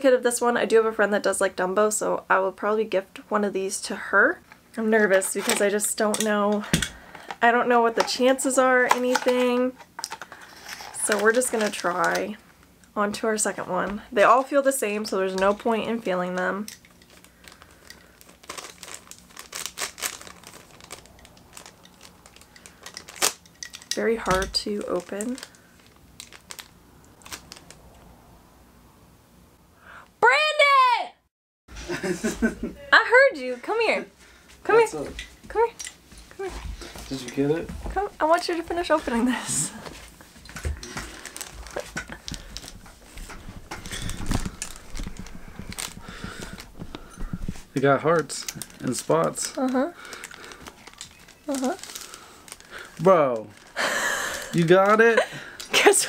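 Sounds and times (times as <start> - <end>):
plastic wrapping crinkling: 8.0 - 12.7, 13.4 - 28.0, 38.2 - 56.0
wrapping tearing: 16.8 - 27.9, 40.7 - 56.0.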